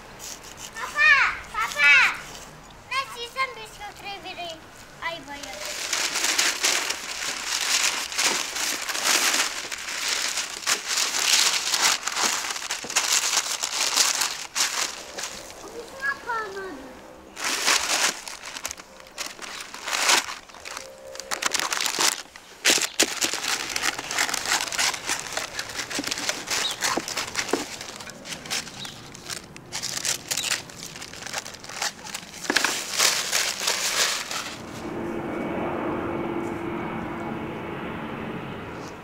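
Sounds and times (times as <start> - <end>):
steady hum: 2.7 - 39.0
baking paper crinkling: 5.3 - 16.1, 17.4 - 34.6.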